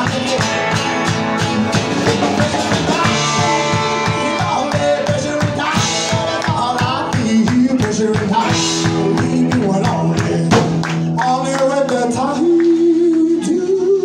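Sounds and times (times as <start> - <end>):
live country-rock band: 0.0 - 14.0
man singing: 0.0 - 14.0.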